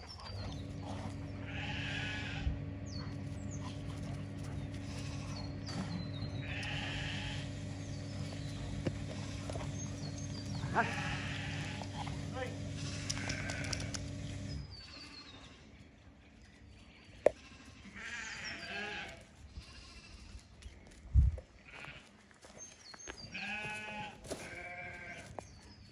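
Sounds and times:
low steady hum: 0.0s - 14.7s
livestock bleating: 0.4s - 15.7s, 17.3s - 20.5s, 21.6s - 22.1s, 23.3s - 25.4s.

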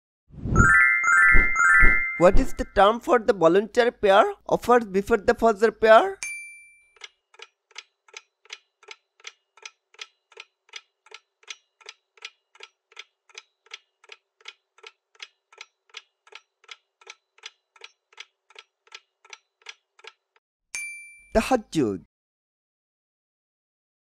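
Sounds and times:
clock-like timer ticks: 6.9s - 20.4s.

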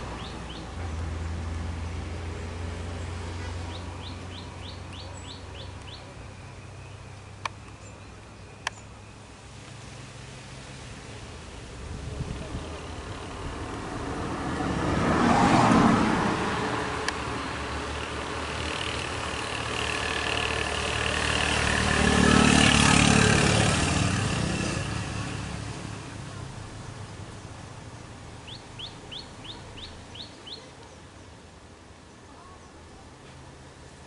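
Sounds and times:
vehicles passing: 0.0s - 34.0s
bird chirping: 0.1s - 0.8s, 3.6s - 9.2s, 28.4s - 31.0s.

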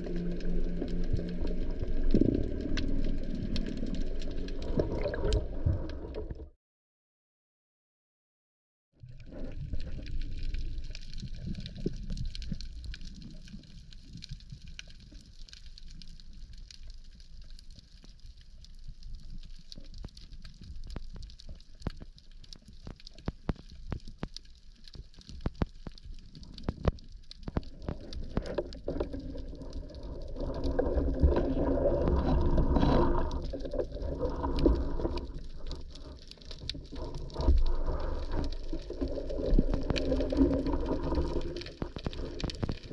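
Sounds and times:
rushing water movement: 0.0s - 6.3s, 26.1s - 42.9s
low underwater water rumble: 0.0s - 6.6s, 9.0s - 42.9s
sharp clicks underwater: 19.2s - 42.9s.

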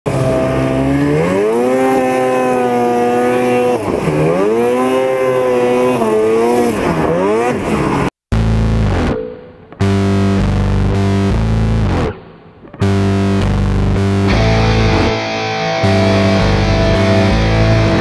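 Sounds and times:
snowmobile engine revving: 0.1s - 8.2s.

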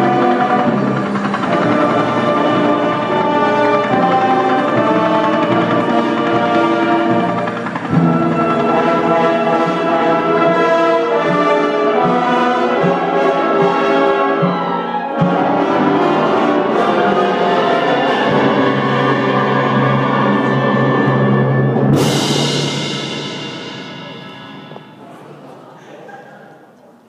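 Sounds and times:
wind band playing: 0.0s - 25.2s
sustained brass chords: 0.0s - 25.4s
cymbal crash: 0.0s - 25.5s
low drum strokes: 15.2s - 25.7s.

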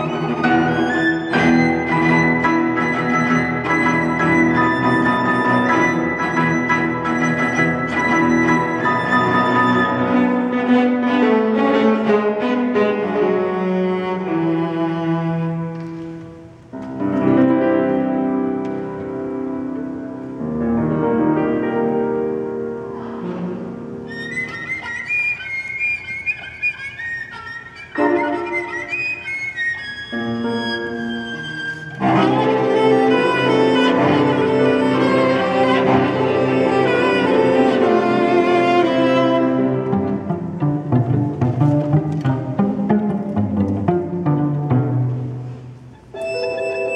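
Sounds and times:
bowed strings: 0.0s - 18.0s, 30.0s - 46.9s
piano: 0.0s - 46.9s.

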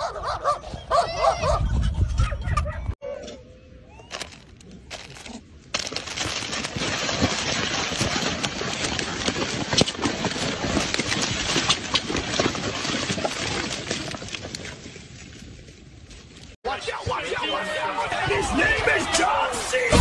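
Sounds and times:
cardboard box rustling: 4.1s - 14.9s
plastic wrappers crinkling: 4.1s - 14.9s.

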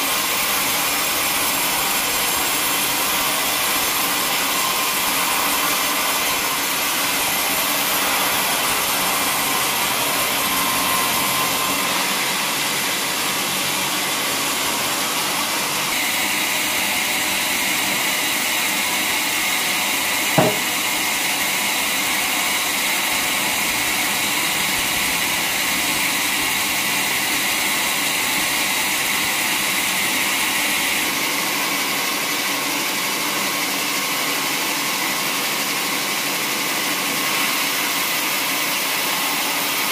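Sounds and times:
band sawmill sawing log: 0.0s - 39.9s
sharp knock: 20.4s - 20.8s.

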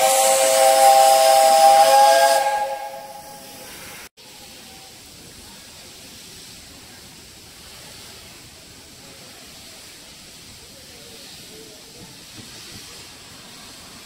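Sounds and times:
high-pitched hiss: 0.0s - 14.0s.

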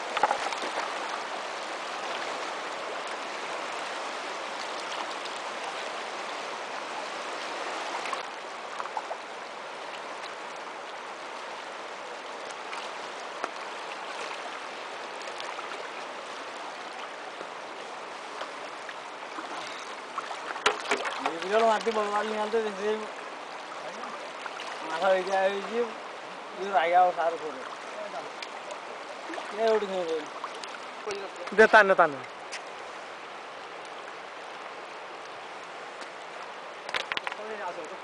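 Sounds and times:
river rushing over stones: 0.0s - 38.0s
small water splashes: 0.0s - 38.0s.

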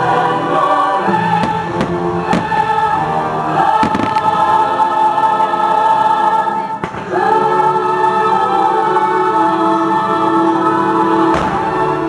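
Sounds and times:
choir singing over orchestra: 0.0s - 12.0s
firework bangs: 1.3s - 2.9s, 3.6s - 4.7s, 6.8s - 7.2s, 11.3s - 11.9s.

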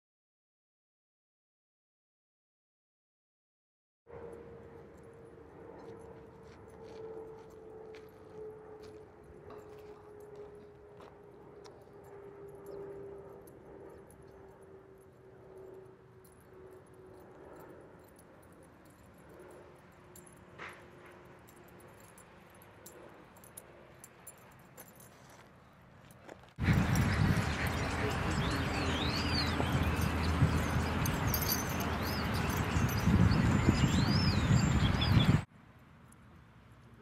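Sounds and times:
dog tags jingling: 15.6s - 25.4s, 26.1s - 34.1s.

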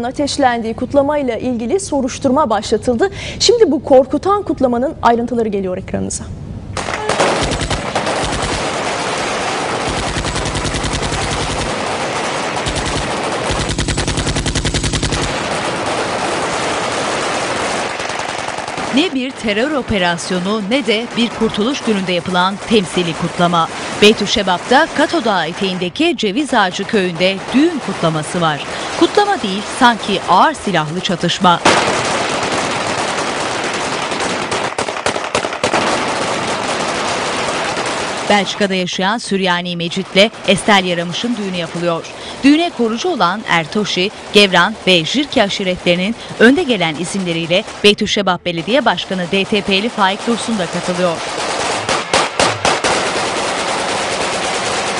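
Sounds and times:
automatic gunfire: 6.8s - 25.9s, 31.5s - 38.7s, 48.6s - 54.9s.

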